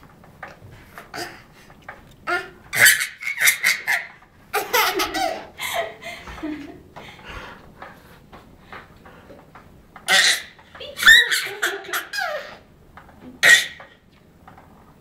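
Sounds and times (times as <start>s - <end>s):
baby laughing: 2.3s - 6.2s, 10.1s - 12.6s.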